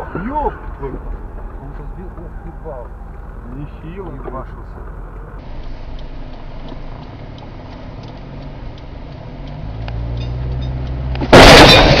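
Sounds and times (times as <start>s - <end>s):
car crash: 11.2s - 12.0s
windshield shattering: 11.2s - 12.0s.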